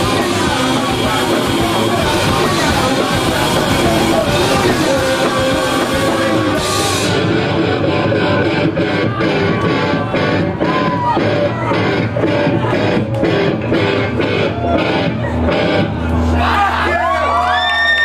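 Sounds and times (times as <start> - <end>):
rock band playing live: 0.0 - 16.4.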